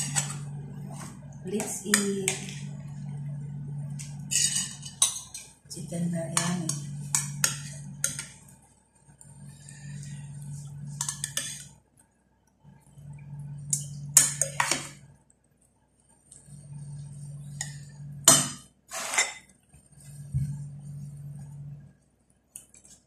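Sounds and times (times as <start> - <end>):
low background hum or music: 0.0 - 23.0.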